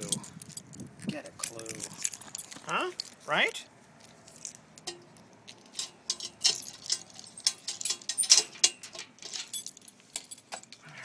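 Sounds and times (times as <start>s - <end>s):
small metal pieces clinking: 4.3s - 10.8s.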